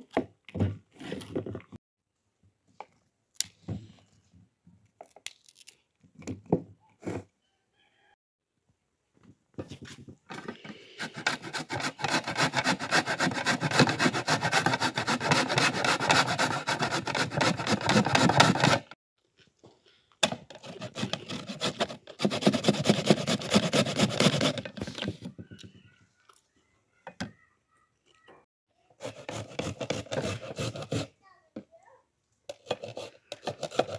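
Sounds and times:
cauliflower rasping on metal grater: 0:11.0 - 0:18.9.

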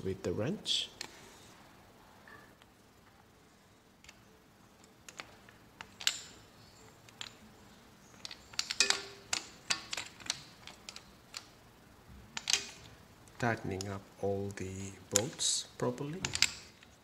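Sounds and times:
socket ratchet clicking: 0:05.1 - 0:07.5, 0:08.1 - 0:11.6, 0:12.4 - 0:13.9, 0:16.2 - 0:17.0.

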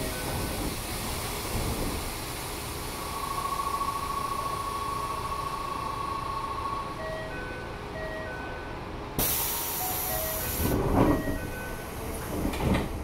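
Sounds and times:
train equipment hiss and hum: 0:00.0 - 0:13.0
door chime beeps: 0:04.9 - 0:08.8, 0:09.6 - 0:10.5, 0:11.1 - 0:11.8.

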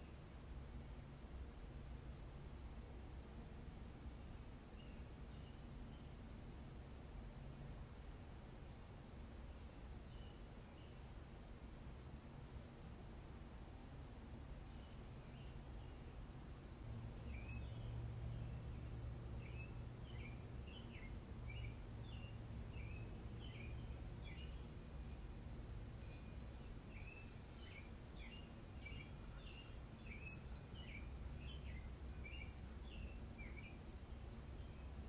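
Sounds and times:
low steady hum: 0:00.0 - 0:35.0
small bird chirping: 0:14.6 - 0:35.0.

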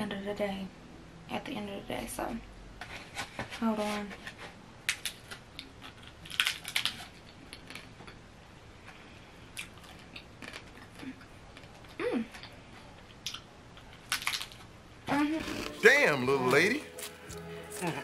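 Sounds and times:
taco crunching while chewed: 0:04.8 - 0:14.8
person humming: 0:17.4 - 0:18.0.

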